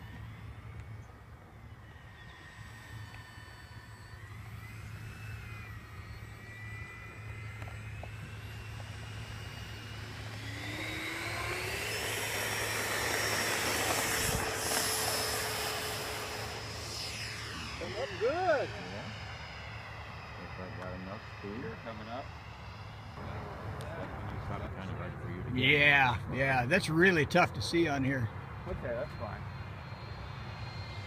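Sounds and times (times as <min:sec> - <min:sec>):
model jet fan whine: 0:00.0 - 0:31.0.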